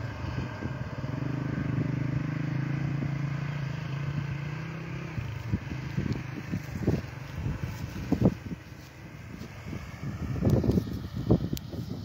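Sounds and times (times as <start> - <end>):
combine harvester engine droning: 0.0 - 12.0
wind buffeting microphone: 0.0 - 12.0.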